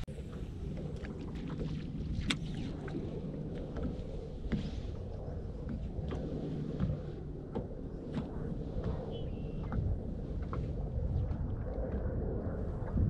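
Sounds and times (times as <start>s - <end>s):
water lapping against boat hull: 0.0s - 13.0s
wind rumble: 0.0s - 13.0s.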